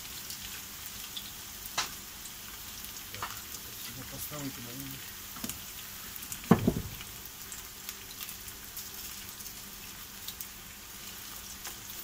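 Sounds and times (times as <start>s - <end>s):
onion sizzling in oil: 0.0s - 12.0s
dull thump: 6.4s - 7.1s.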